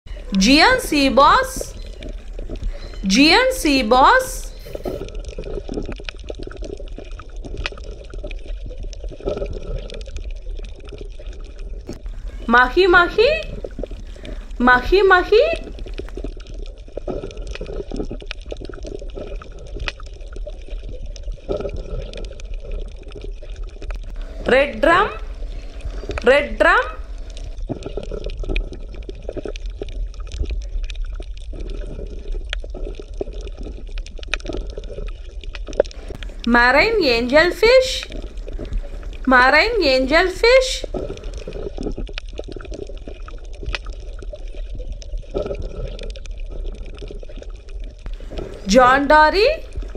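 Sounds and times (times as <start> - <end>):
deep steady rumble: 0.0 - 34.2, 35.6 - 44.4, 45.3 - 49.9
underwater bubbling and churning: 0.0 - 49.9.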